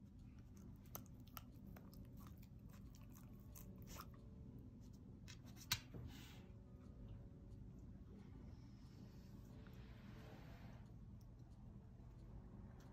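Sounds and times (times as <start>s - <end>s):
dog chewing food: 0.0s - 4.4s.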